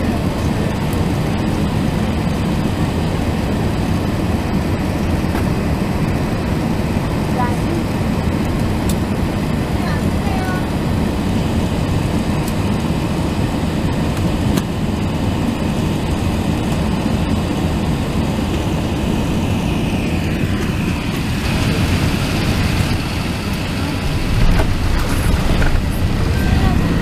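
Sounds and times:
aircraft cabin engine rumble: 0.0 - 27.0
high whine: 18.5 - 27.0.

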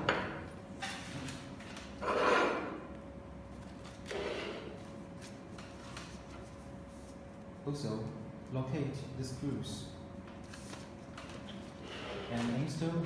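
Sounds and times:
objects scraping on wooden table: 2.0 - 2.8, 4.1 - 4.8, 11.8 - 12.5.

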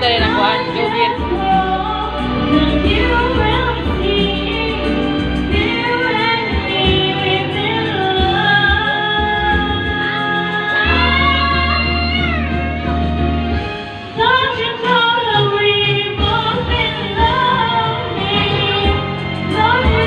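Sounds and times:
recorded backing track: 0.0 - 20.0
woman singing into microphone: 0.0 - 20.0.

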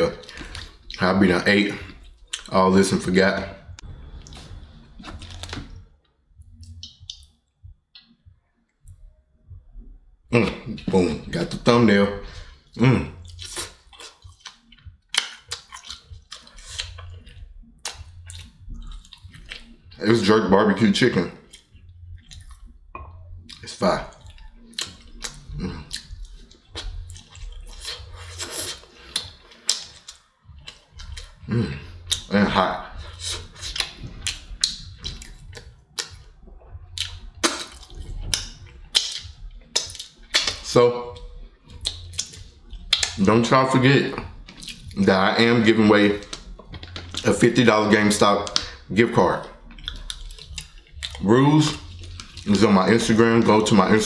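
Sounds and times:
mouth clicks and smacks: 0.1 - 9.1, 10.3 - 20.0, 21.4 - 54.0
fingers pulling meat apart: 37.0 - 40.7.

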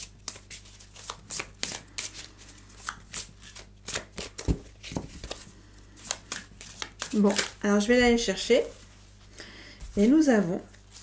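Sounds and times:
cards being shuffled: 0.0 - 7.6.

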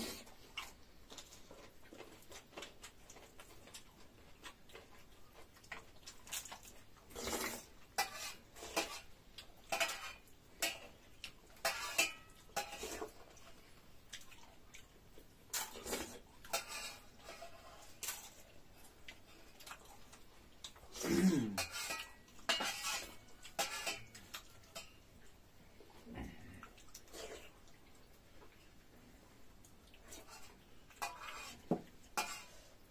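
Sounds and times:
dishes and utensils clinking: 8.0 - 11.0, 11.6 - 13.2, 21.4 - 25.1, 30.2 - 32.6.

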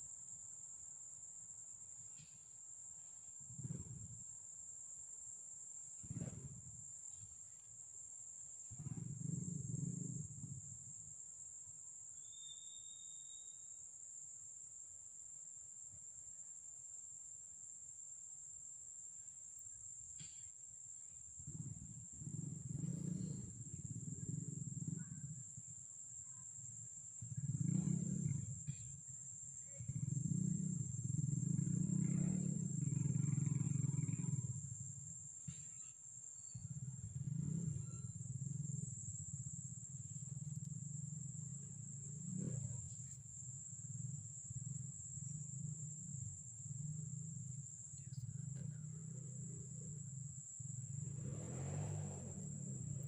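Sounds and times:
high-pitched insect drone: 0.0 - 14.8, 19.0 - 53.0
brief whistle: 12.2 - 13.7.

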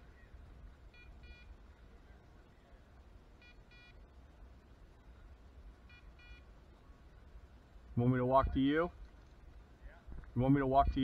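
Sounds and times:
faint electronic double beeps: 0.9 - 1.6, 3.4 - 4.0, 5.8 - 6.5.

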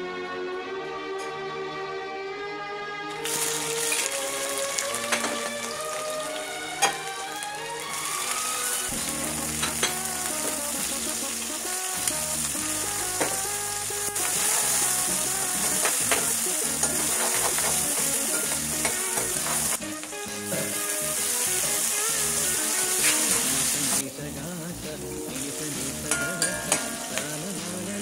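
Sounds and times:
chillies sizzling in hot oil: 3.1 - 28.0
steel ladle scraping a wok: 3.2 - 5.6, 15.6 - 21.8, 22.4 - 23.7, 26.0 - 27.5.

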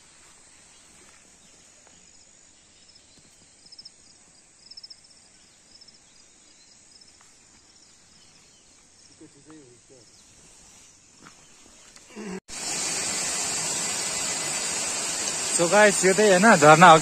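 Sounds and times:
insect chirping trills: 0.0 - 12.0
high insect drone: 12.2 - 17.0.

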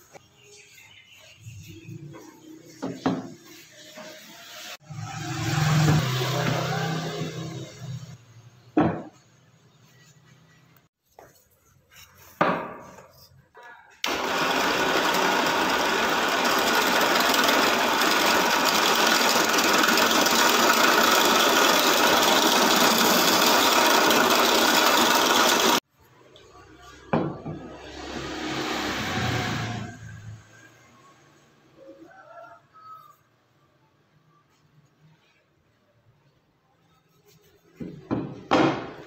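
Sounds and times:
wooden knock: 8.8 - 9.2, 37.8 - 39.0
electric drill motor whine: 14.0 - 25.8.

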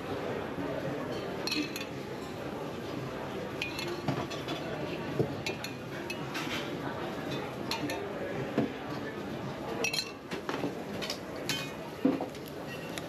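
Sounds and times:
kitchen background noise: 0.0 - 13.0
metal spoon clinking on pans and plates: 1.1 - 2.5, 3.6 - 8.1, 9.8 - 10.3, 11.0 - 11.8, 12.6 - 13.0.

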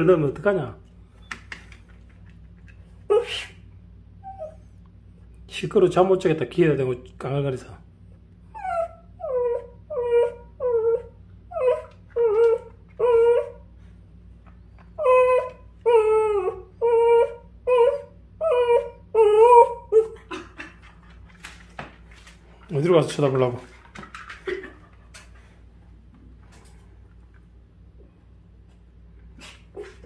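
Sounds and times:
dog whining: 3.0 - 4.8, 8.4 - 13.9, 14.6 - 20.6.

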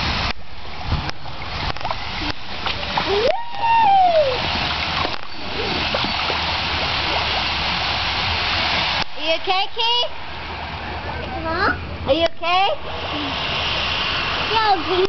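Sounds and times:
water splashing in a pool: 0.0 - 15.0
high falling voice call: 3.1 - 4.5.

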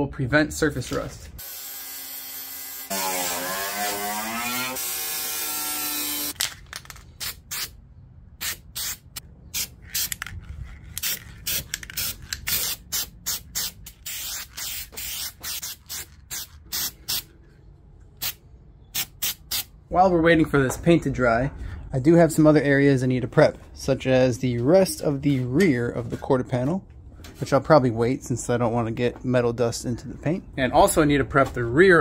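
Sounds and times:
aerosol spray hissing bursts: 11.5 - 17.2.

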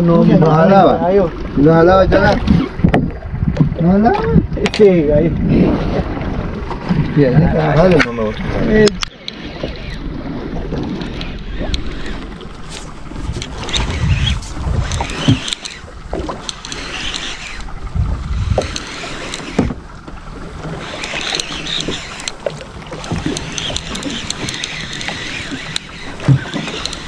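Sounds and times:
wind buffeting microphone: 0.0 - 21.0
water lapping against boat hull: 0.0 - 27.0
low thuds and knocks: 2.5 - 4.5, 19.5 - 19.8.

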